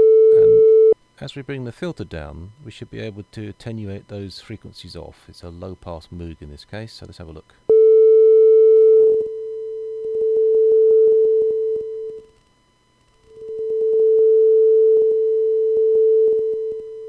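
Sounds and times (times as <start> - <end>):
synthesizer sine tone: 0.0 - 1.0, 7.7 - 12.4.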